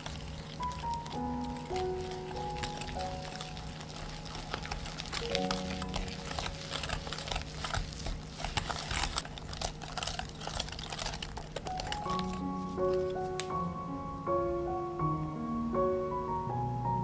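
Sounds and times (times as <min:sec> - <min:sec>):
wet batter noise: 0:00.0 - 0:13.5.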